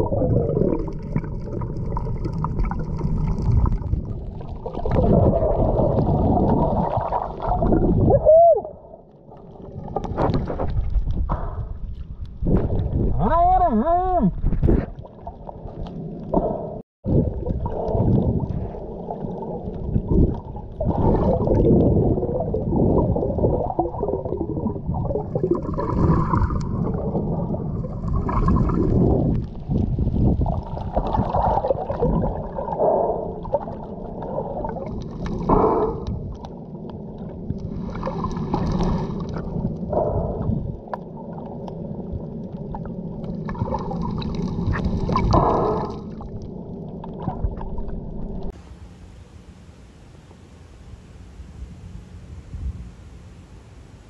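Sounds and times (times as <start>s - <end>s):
water sloshing and gurgling: 0.0s - 13.3s, 14.3s - 49.0s
hissy splashes: 37.6s - 40.4s.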